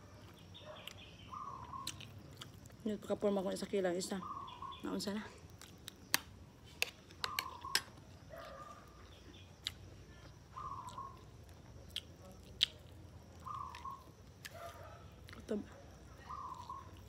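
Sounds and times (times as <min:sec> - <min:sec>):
chewing food: 0:00.0 - 0:02.8, 0:05.4 - 0:17.0
sharp eating clicks: 0:00.2 - 0:02.8, 0:09.3 - 0:17.0.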